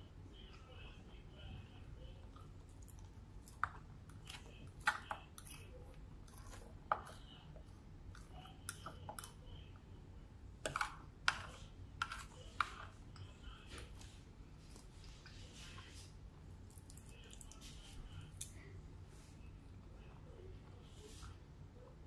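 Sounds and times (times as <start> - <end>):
chewing: 2.2 - 9.5, 16.5 - 18.7
plastic fork scraping plate: 10.6 - 13.0.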